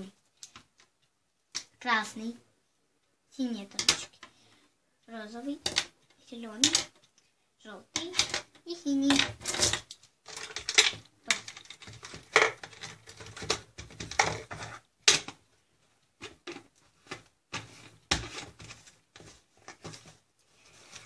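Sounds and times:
plastic pens clattering in jar: 8.0 - 15.3.

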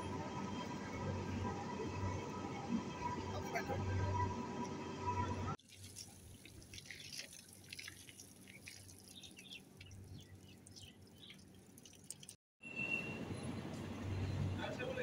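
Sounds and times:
water splashing and dripping: 5.6 - 12.4.

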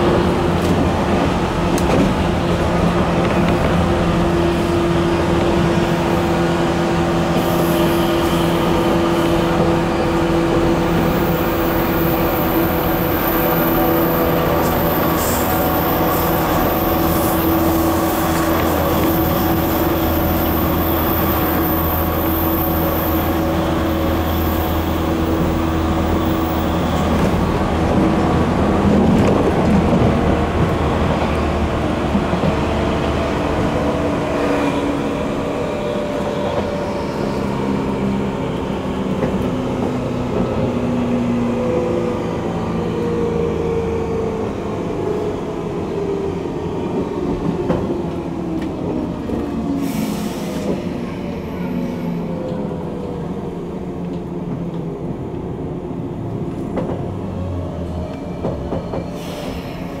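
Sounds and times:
rail joint clicks: 0.1 - 4.0, 39.0 - 40.8, 46.9 - 51.0, 54.0 - 55.5, 56.2 - 57.2, 57.8 - 60.0.

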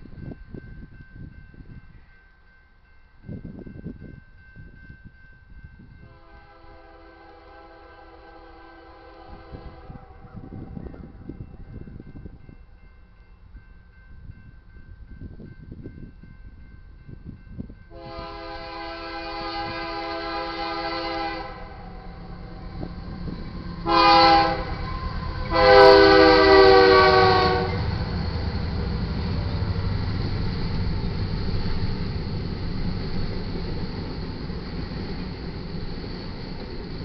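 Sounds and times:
freight train rumbling past: 2.9 - 37.0
locomotive air horn blasts: 6.0 - 10.5, 17.9 - 27.9.

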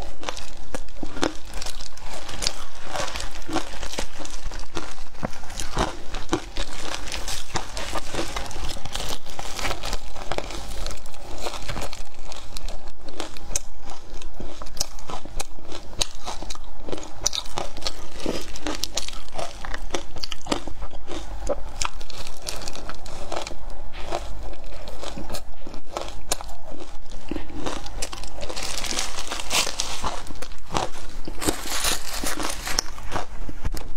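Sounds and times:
crushed ice crunching: 27.3 - 33.3.

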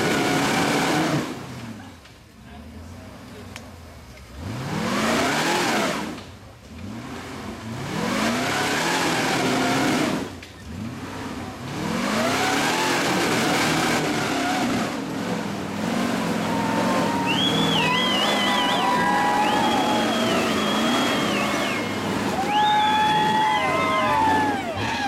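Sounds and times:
engine revving hard: 0.0 - 1.7, 4.4 - 25.0
high wavering whistle: 17.1 - 23.8.

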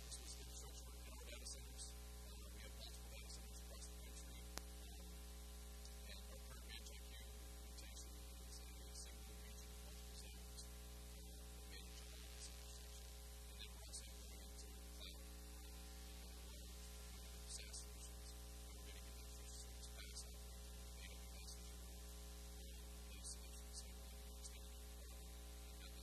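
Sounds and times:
background hiss: 0.0 - 26.0
electrical mains hum: 0.0 - 26.0.

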